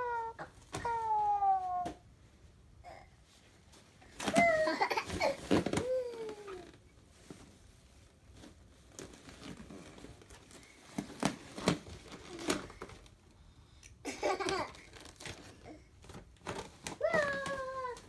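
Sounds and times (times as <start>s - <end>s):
toddler babbling: 0.0s - 2.0s, 17.0s - 18.0s
balloons rustling and knocking: 3.6s - 13.2s, 14.2s - 18.0s.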